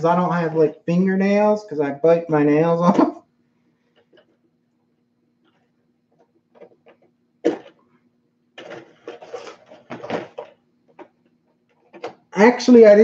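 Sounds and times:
rustling and clattering: 8.6 - 12.3.

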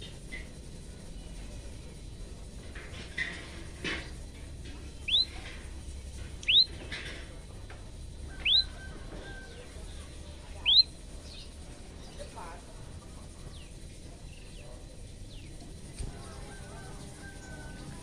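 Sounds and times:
bird calling upward-sweeping notes: 5.1 - 5.3, 6.4 - 6.7, 8.4 - 8.9, 10.6 - 10.9.

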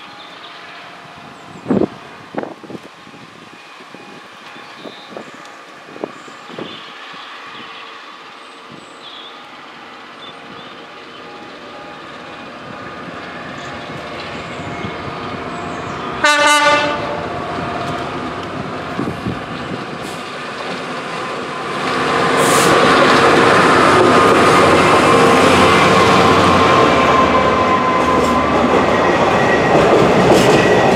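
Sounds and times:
diesel locomotive engine running: 0.0 - 30.9
freight train rumbling past: 0.0 - 30.9
train horn blast: 16.1 - 17.4.

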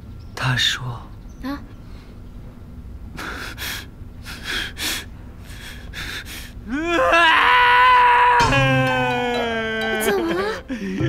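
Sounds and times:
man gasping breaths: 3.2 - 6.6, 10.6 - 11.0.

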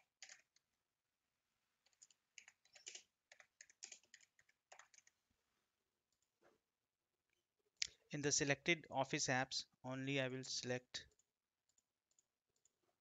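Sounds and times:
faint typing on keyboard: 0.0 - 0.8, 1.8 - 5.2, 10.5 - 12.8.

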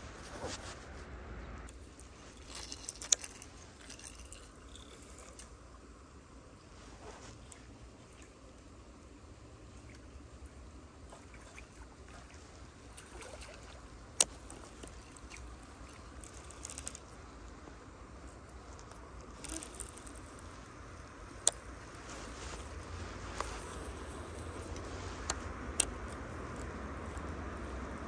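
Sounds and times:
faint outdoor background: 0.0 - 28.0
fishing reel clicks: 2.4 - 5.5, 16.0 - 17.0, 18.8 - 20.5.

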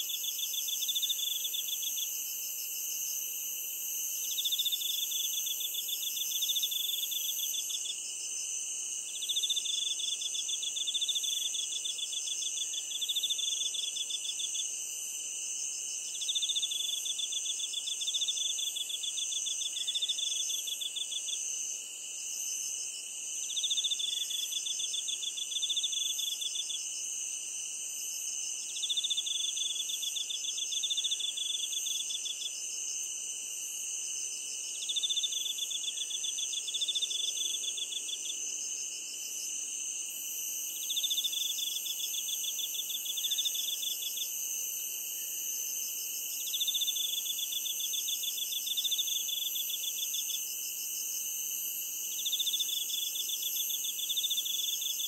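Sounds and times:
steady high insect trill: 0.0 - 55.0.

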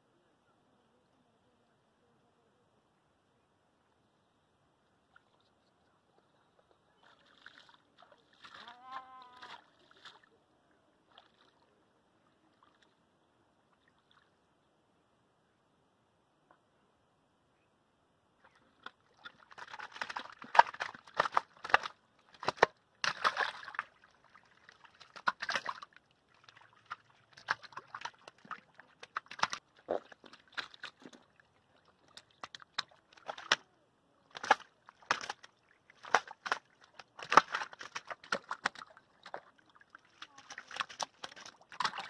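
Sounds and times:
fish splashing in shallow water: 7.0 - 10.3, 11.0 - 11.7, 18.4 - 42.0.

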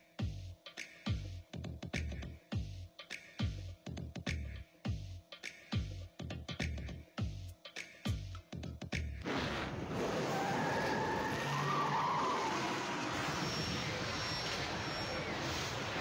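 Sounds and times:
electronic music beats: 0.0 - 9.2
tyres squealing: 9.2 - 16.0
race cars speeding: 9.3 - 16.0.

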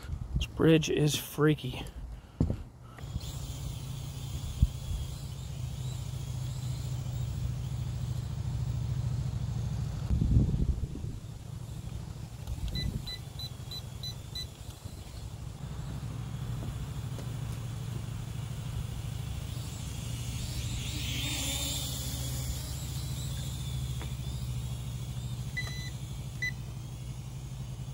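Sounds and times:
low steady rumble: 0.0 - 27.9
drone propellers whirring: 1.6 - 27.9
short electronic beeps: 12.8 - 15.0, 25.5 - 26.6.

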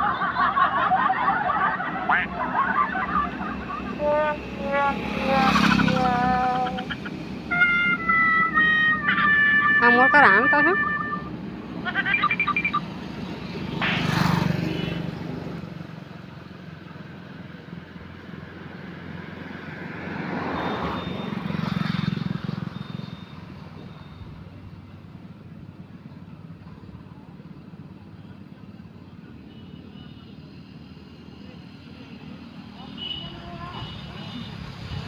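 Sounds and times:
low engine drone: 0.0 - 14.2.

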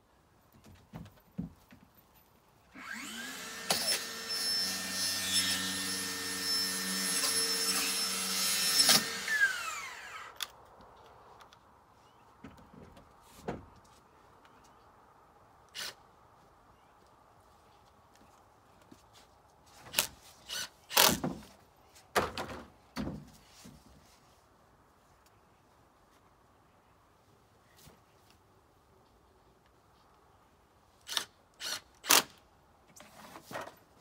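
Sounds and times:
power tool motor spinning: 2.8 - 10.4.

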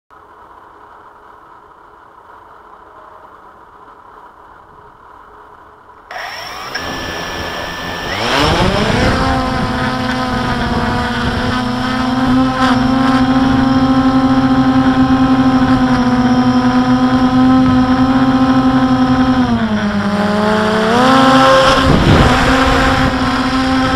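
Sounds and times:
quadcopter motors and propellers: 6.1 - 23.9.

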